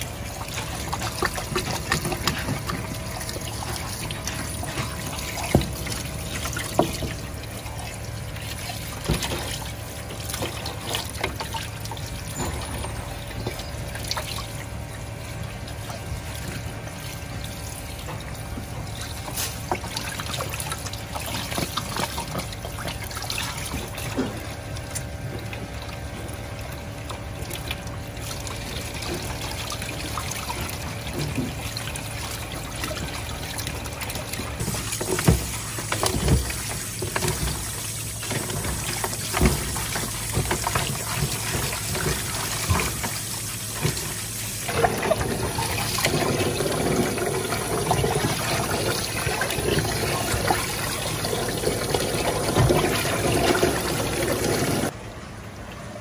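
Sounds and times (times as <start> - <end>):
hands rinsing raw chicken: 0.0 - 54.9
tap water running into steel tray: 27.5 - 54.9.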